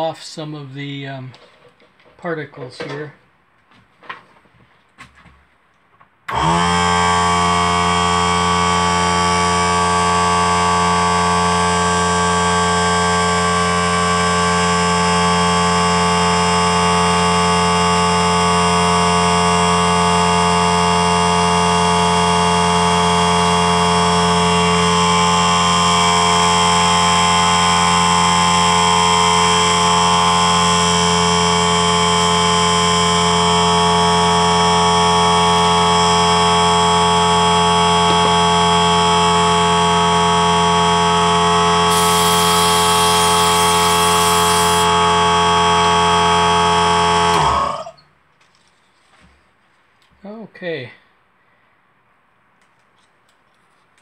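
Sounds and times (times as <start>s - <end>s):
air compressor humming: 6.3s - 48.1s.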